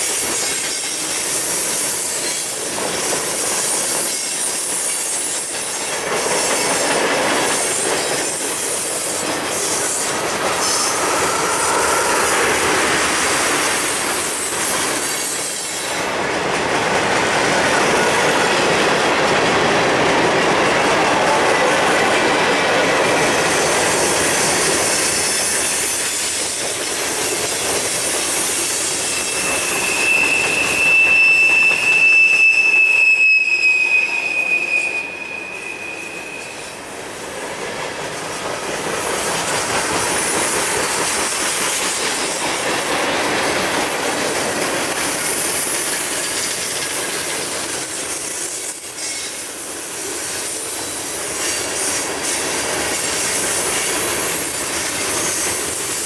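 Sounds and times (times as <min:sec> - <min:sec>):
freight train rolling past: 0:00.0 - 0:56.0
high wheel squeal: 0:07.6 - 0:16.1, 0:23.2 - 0:36.9, 0:48.1 - 0:49.5.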